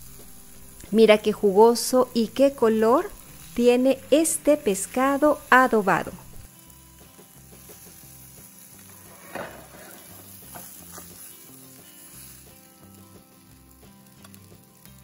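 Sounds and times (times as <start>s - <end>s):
fish sizzling in frying pan: 0.0s - 15.0s
soft background music: 0.0s - 15.0s
metal spatula lifting fish: 8.9s - 11.2s.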